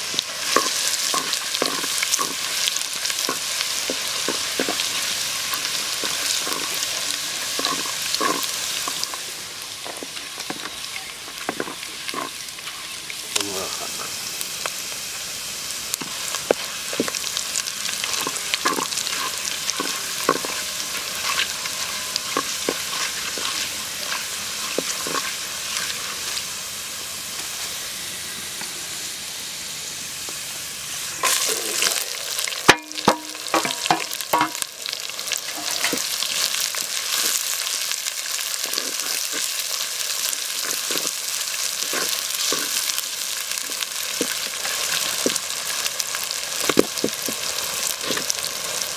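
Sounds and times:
hot oil sizzling: 0.0s - 48.9s
onions frying: 0.0s - 48.9s
crackling pops: 46.6s - 48.4s.

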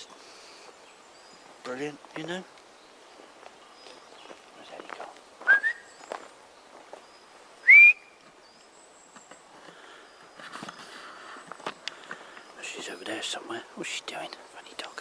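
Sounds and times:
person whistling rising whistles: 5.4s - 6.0s, 7.6s - 8.2s.

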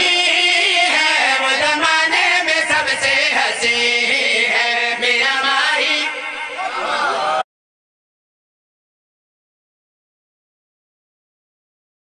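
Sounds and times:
men chanting into microphones: 0.0s - 7.4s.

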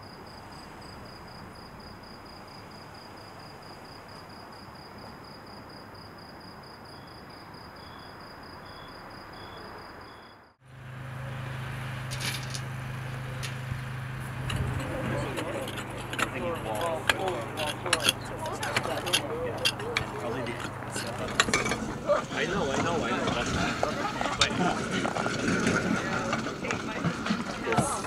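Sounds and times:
crickets chirping: 0.0s - 28.0s
low engine hum: 10.6s - 28.0s.

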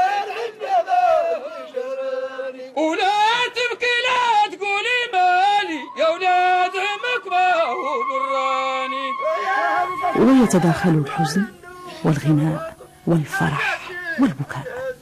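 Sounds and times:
high trilling note: 5.7s - 11.6s.

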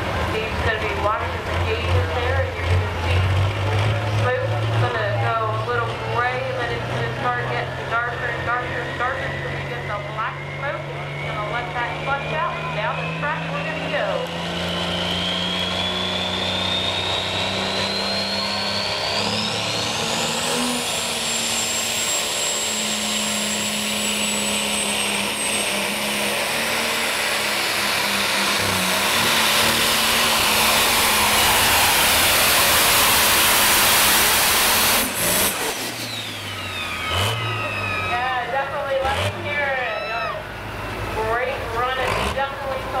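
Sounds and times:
diesel tractor engine at full power: 0.0s - 43.0s
turbo whine: 8.1s - 39.4s.

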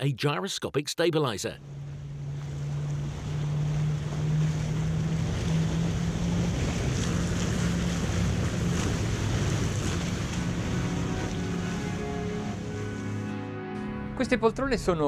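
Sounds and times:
wind: 1.5s - 13.2s
outboard engines droning: 1.5s - 15.0s
rushing water: 1.6s - 13.3s.

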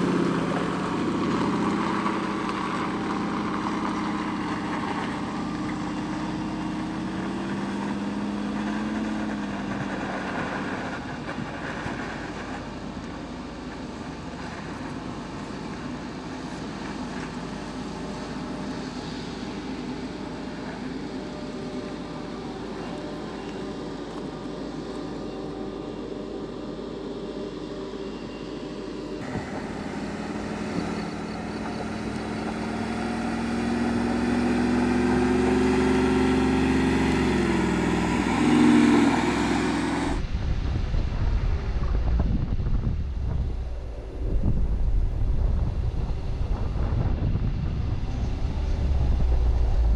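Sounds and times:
suv engine climbing: 0.0s - 49.9s
wind on microphone: 40.1s - 49.9s.

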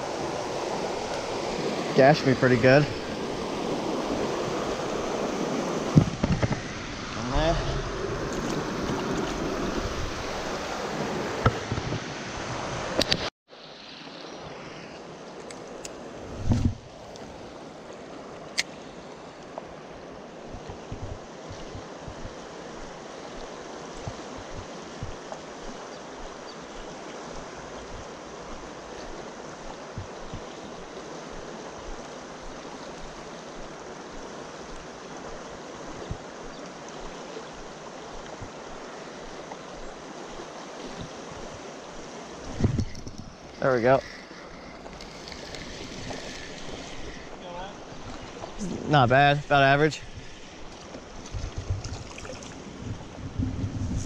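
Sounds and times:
water rushing over rocks: 0.0s - 54.0s
water splashing: 15.3s - 54.0s.

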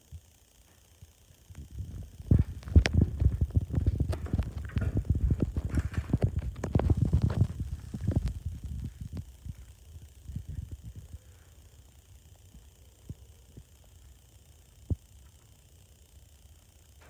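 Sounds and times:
camera handling bumps and rubbing: 2.1s - 9.4s.

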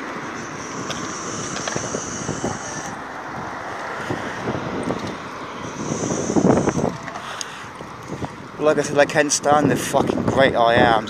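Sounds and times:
steady rushing background: 0.0s - 8.6s
wind buffeting microphone: 0.0s - 11.0s.

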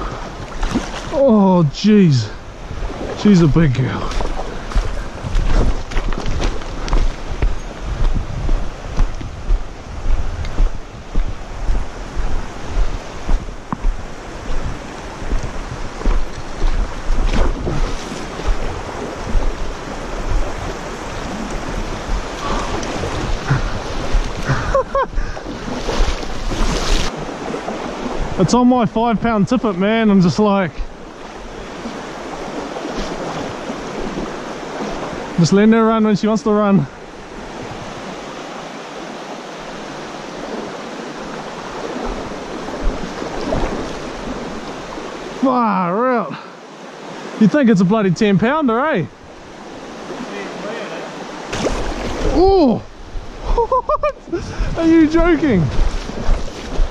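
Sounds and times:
river running over stones: 0.0s - 53.6s, 54.2s - 56.9s
wind buffeting microphone: 2.2s - 29.5s, 36.9s - 45.4s, 51.4s - 56.9s
low bumps: 3.0s - 26.8s.

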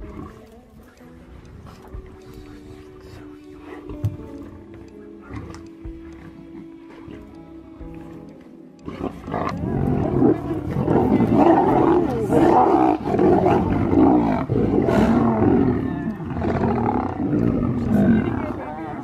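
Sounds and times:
lions snarling and growling: 0.0s - 7.6s, 8.8s - 19.0s.

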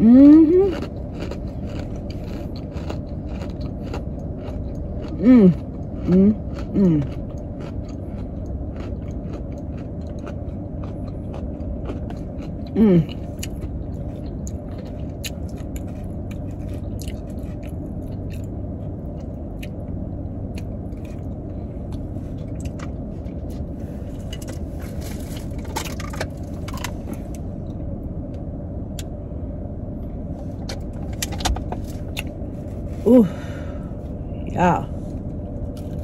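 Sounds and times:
air conditioning hum: 0.0s - 36.0s
chewing: 0.6s - 19.8s, 20.5s - 27.4s, 35.6s - 36.0s
car engine idling: 9.4s - 36.0s.

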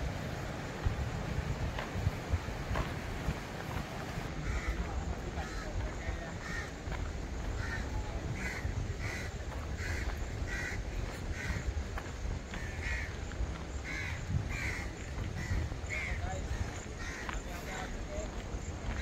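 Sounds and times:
steady low rumble: 0.0s - 19.0s
bird calling: 4.2s - 19.0s.

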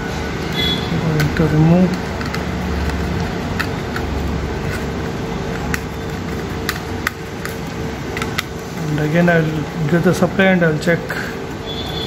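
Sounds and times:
steady low hum: 0.0s - 12.0s
screwdriver and metal parts clicking: 0.5s - 10.0s.

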